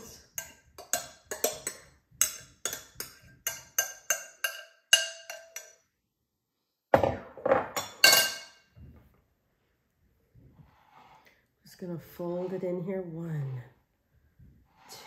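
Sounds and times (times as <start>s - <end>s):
metal spoon clinking glass bowl: 0.0s - 5.9s, 7.7s - 8.6s
glass knocking and clattering: 6.9s - 8.6s.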